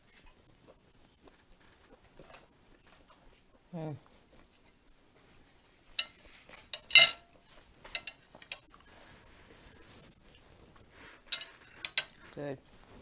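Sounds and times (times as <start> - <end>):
fork clinking on china plate: 5.7 - 7.3.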